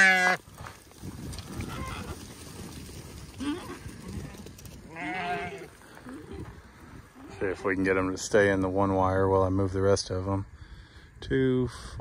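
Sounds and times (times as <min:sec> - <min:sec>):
sheep bleating: 0:00.0 - 0:00.4, 0:04.8 - 0:05.8.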